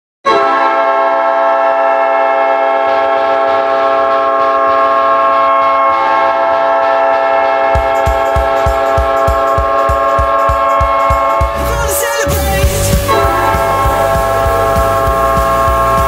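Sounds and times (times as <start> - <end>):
goal horn blast: 0.3 - 16.0
regular drum beat: 7.8 - 16.0.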